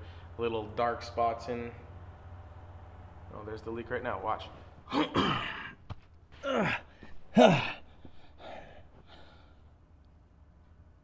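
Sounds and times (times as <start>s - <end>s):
man sighing exclamations: 6.4s - 7.8s.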